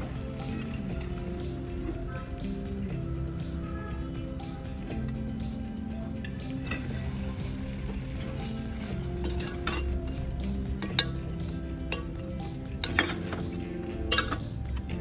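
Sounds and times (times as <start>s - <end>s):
background music: 0.0s - 15.0s
spoon clinking against steel pan: 8.0s - 14.9s.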